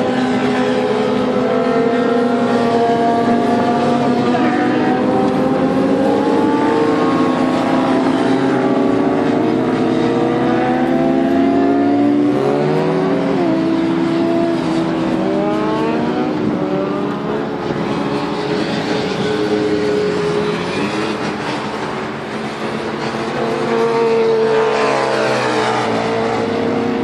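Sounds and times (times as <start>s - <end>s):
motorcycle engines revving: 0.0s - 27.0s
road traffic passing: 0.0s - 27.0s.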